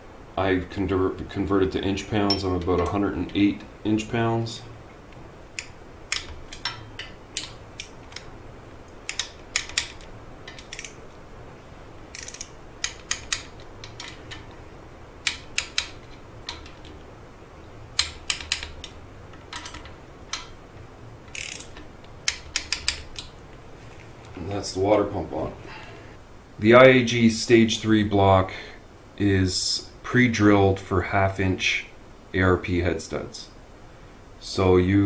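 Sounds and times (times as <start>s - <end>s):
torque wrench ratchet clicking: 9.1s - 11.0s, 12.1s - 14.4s, 21.3s - 23.2s.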